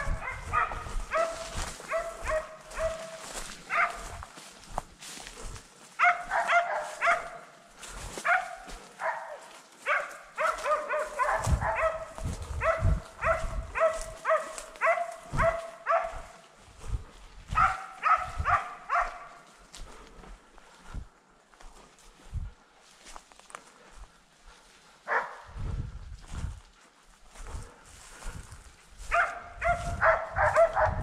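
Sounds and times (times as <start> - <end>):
dogs barking and yelping: 0.0 - 4.3, 5.9 - 16.4, 17.5 - 19.5, 29.0 - 31.0
footsteps on forest trail: 0.0 - 31.0.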